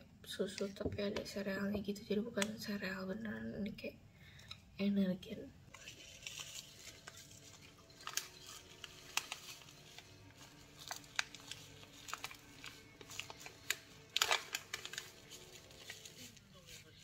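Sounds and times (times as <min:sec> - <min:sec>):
plastic sachet crinkling: 0:05.7 - 0:17.0.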